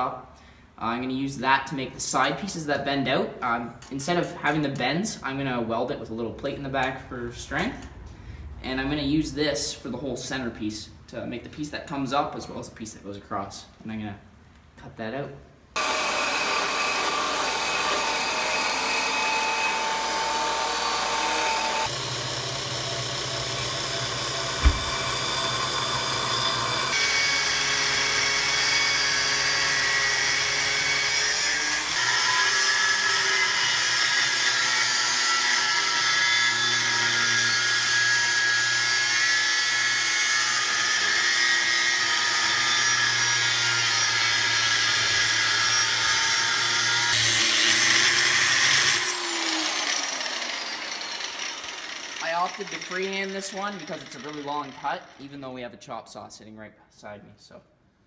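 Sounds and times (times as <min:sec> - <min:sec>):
angle grinder cutting steel: 0:15.8 - 0:55.3
chop saw cutting steel: 0:15.8 - 0:55.4
sharp knock: 0:24.6 - 0:25.3.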